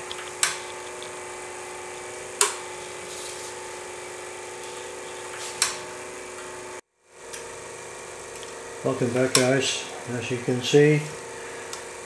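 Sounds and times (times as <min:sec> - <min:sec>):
coil-winding machine motor hum: 0:00.0 - 0:12.0
sharp click: 0:09.2 - 0:09.6.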